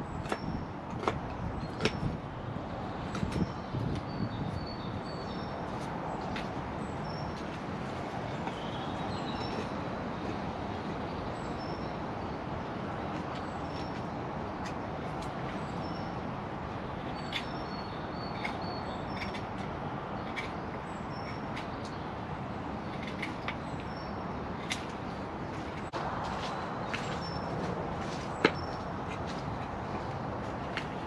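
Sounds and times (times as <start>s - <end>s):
rushing background noise: 0.0s - 31.0s
small birds chirping: 3.0s - 7.6s, 8.2s - 9.8s, 13.0s - 30.1s.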